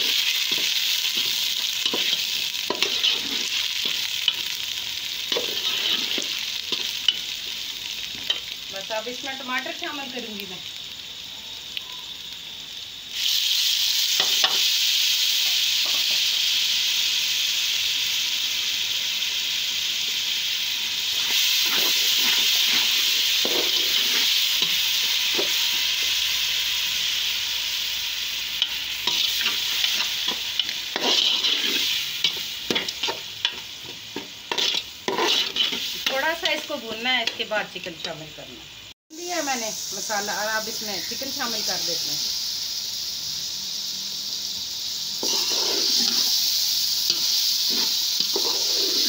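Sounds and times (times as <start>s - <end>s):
metal spatula scraping a pot: 0.0s - 4.4s, 5.3s - 6.3s, 29.1s - 36.5s, 45.2s - 46.4s, 47.1s - 49.0s
loud sizzle in hot oil: 0.0s - 49.0s.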